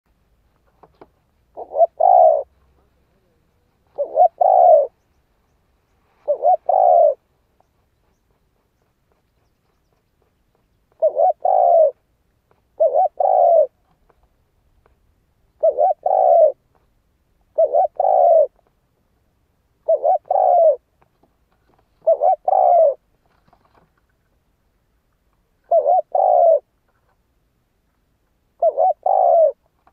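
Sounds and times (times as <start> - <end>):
dove cooing: 1.5 - 5.0, 6.2 - 7.3, 10.9 - 12.0, 12.8 - 13.8, 15.5 - 16.6, 17.5 - 18.6, 19.8 - 20.9, 22.0 - 23.0, 25.6 - 26.7, 28.6 - 29.6.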